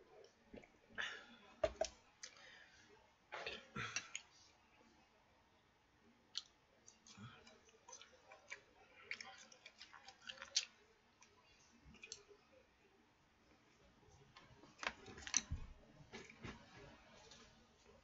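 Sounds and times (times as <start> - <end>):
quiet chewing: 6.3 - 12.6.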